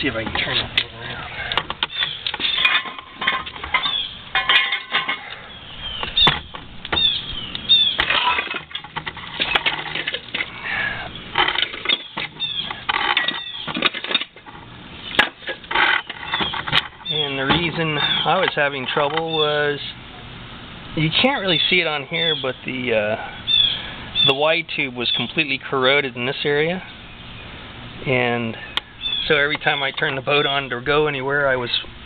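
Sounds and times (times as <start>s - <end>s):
metal scraping on concrete: 0.1s - 5.5s, 7.7s - 19.1s
metal clanks and knocks: 1.5s - 5.4s, 7.9s - 10.5s, 11.3s - 19.3s.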